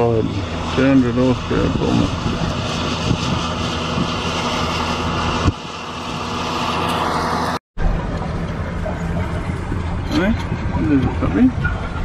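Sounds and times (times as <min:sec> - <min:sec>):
continuous rushing noise: 0:00.0 - 0:12.0.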